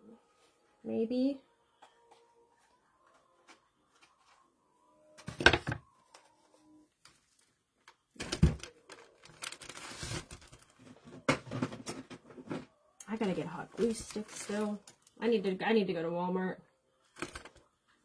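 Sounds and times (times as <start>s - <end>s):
artificial leaves rustling: 13.2s - 15.2s.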